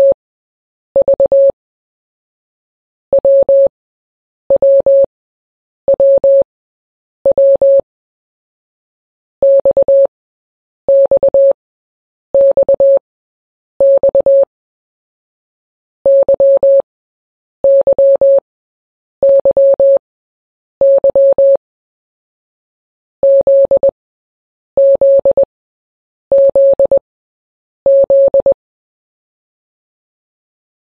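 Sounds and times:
morse code beeps: 0:09.4 - 0:10.1, 0:10.9 - 0:11.6, 0:12.4 - 0:13.0, 0:13.8 - 0:14.5, 0:16.1 - 0:16.8, 0:17.7 - 0:18.4, 0:19.2 - 0:20.0, 0:20.8 - 0:21.6, 0:23.2 - 0:24.0, 0:24.8 - 0:25.5, 0:26.3 - 0:27.0, 0:27.9 - 0:28.6.

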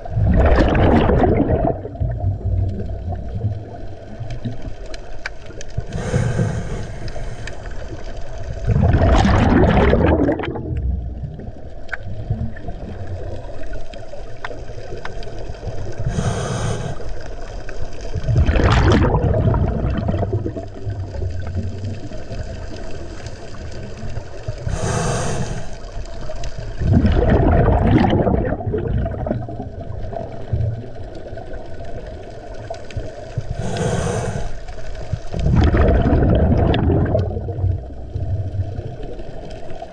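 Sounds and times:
exhaled bubbles rushing: 0:00.0 - 0:39.9
regulator inhale hiss: 0:05.8 - 0:07.9, 0:16.0 - 0:17.3, 0:24.6 - 0:25.9, 0:33.5 - 0:34.9.

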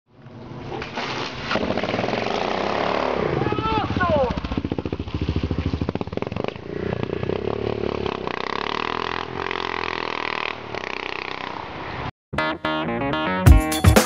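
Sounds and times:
motorcycle engine running: 0:01.6 - 0:12.1
plucked guitar music: 0:12.4 - 0:14.0.

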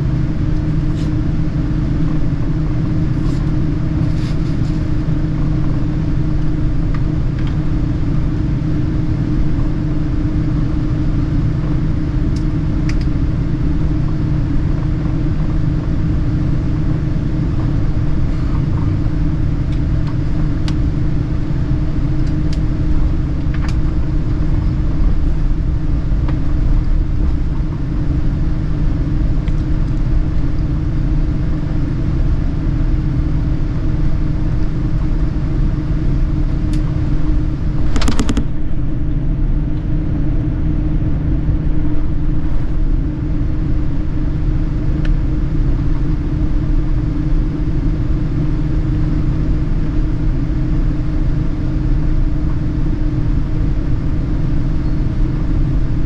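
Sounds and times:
aircraft cabin engine rumble: 0:00.0 - 0:56.0
steady hum: 0:00.0 - 0:56.0.

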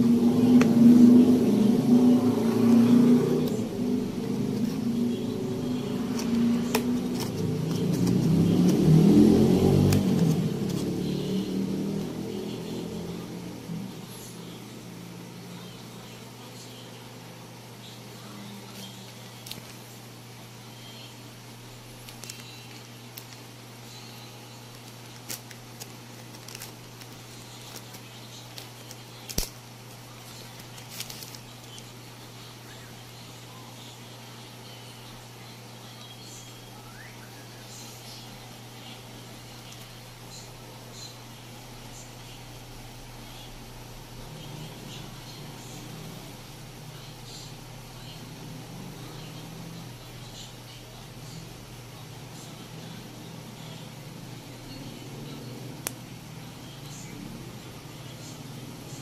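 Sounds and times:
low engine rumble: 0:00.0 - 0:29.0
plastic wrapping crinkling: 0:18.7 - 0:19.8, 0:22.0 - 0:23.4, 0:24.6 - 0:31.9.

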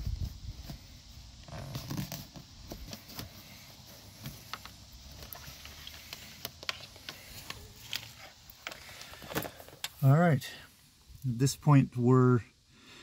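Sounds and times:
trim and carpet rustling: 0:00.0 - 0:10.0.

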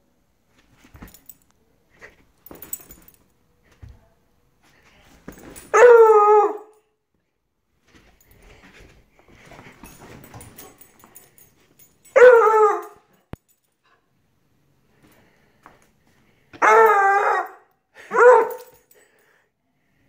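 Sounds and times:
puppy howling: 0:05.7 - 0:06.7, 0:12.2 - 0:13.0, 0:16.6 - 0:17.6.

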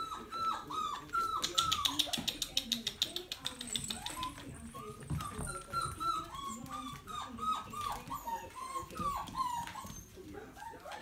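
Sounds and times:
puppies whining and yipping: 0:00.0 - 0:02.3, 0:03.7 - 0:11.0.

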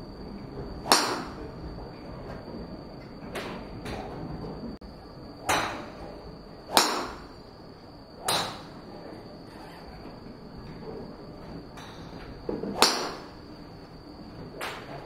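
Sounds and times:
golf drivers striking balls: 0:00.8 - 0:01.5, 0:05.4 - 0:06.1, 0:06.7 - 0:07.4, 0:08.2 - 0:08.8, 0:12.5 - 0:13.4.

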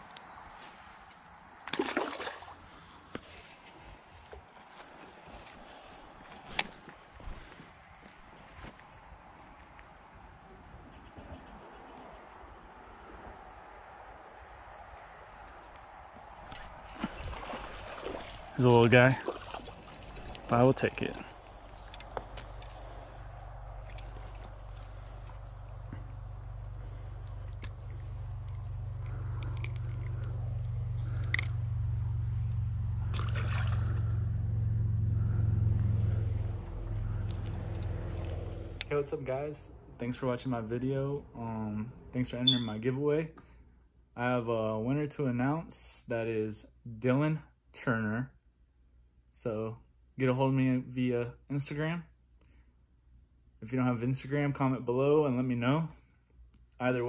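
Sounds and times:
insects chirping: 0:00.0 - 0:44.4
fish splashing into water: 0:01.6 - 0:02.6, 0:16.8 - 0:20.5, 0:33.0 - 0:34.2
low rumble: 0:20.1 - 0:40.1.

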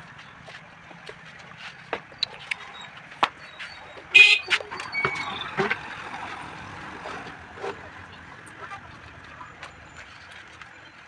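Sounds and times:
knocks and clicks of tyre handling: 0:00.5 - 0:03.4.

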